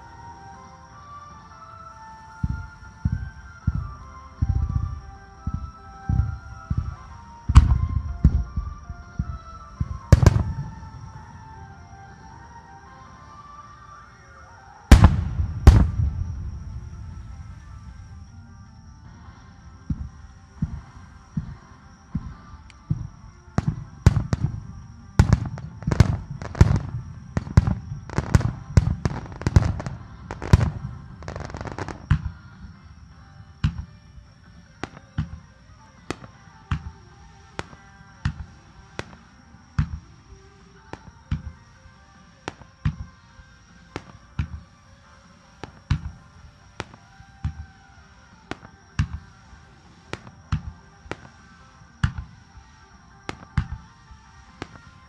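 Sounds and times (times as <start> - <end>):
faint music: 0.0 - 55.0
firework shells bursting: 3.7 - 11.7, 14.9 - 18.9, 22.2 - 32.4.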